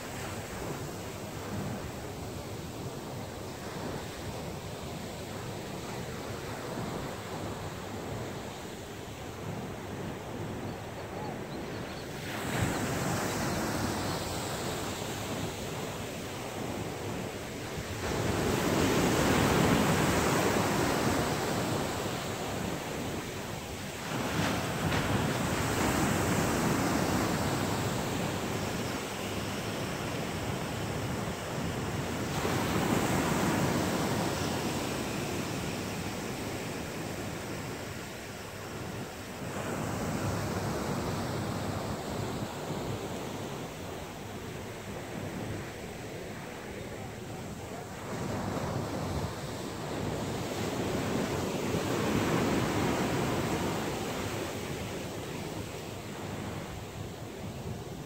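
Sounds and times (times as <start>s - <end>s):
waves breaking: 12.2s - 56.8s.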